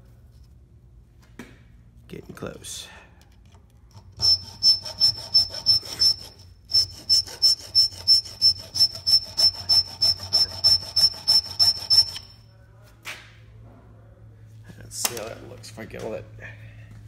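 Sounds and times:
file stroking steel with ring: 4.0s - 12.5s.

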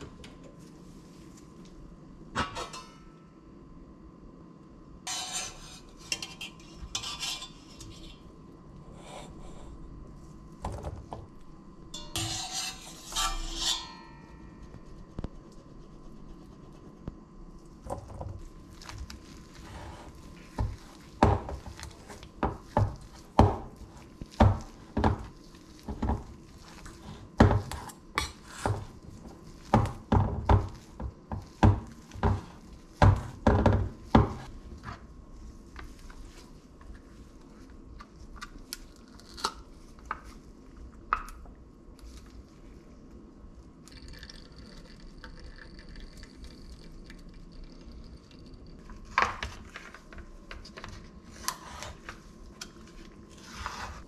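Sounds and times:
skimmer clinking in steel pot: 11.9s - 14.2s.

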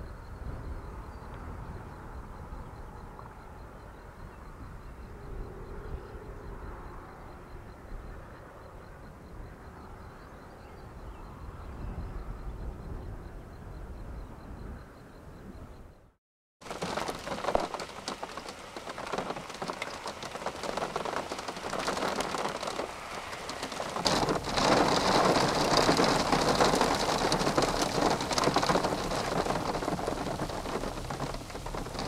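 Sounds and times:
heavy rain rattling against car: 16.6s - 32.0s
gusty wind: 16.8s - 32.0s.

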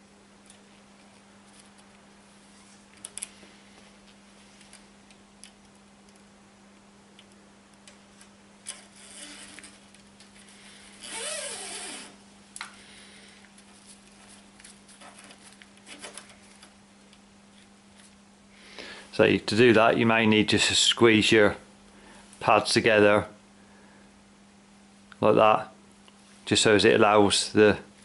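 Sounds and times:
faint clicks and rustles: 0.4s - 18.3s
cable scraping: 8.6s - 12.2s.

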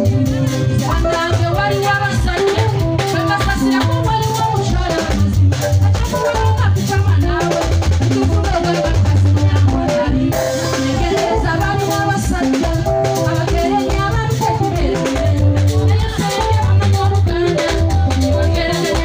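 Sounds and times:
live band music: 0.0s - 19.0s
woman singing into a microphone: 0.0s - 19.0s.

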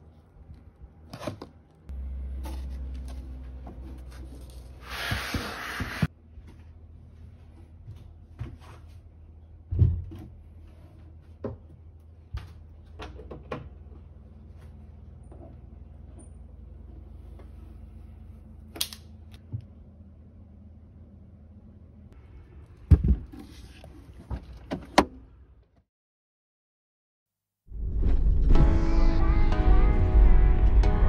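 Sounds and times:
low steady hum: 0.0s - 4.8s.

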